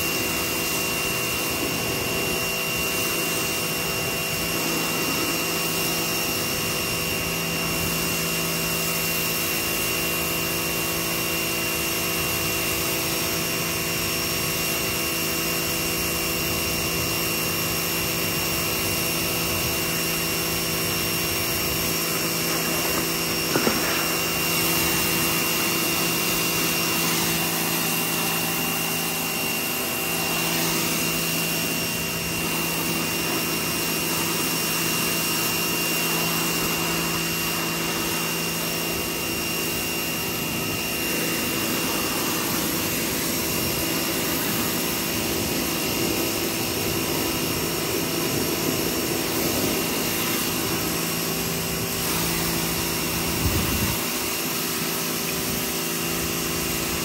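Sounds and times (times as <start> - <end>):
water jet spraying hiss: 0.0 - 9.9, 18.9 - 57.0
pressure washer humming: 0.0 - 57.0.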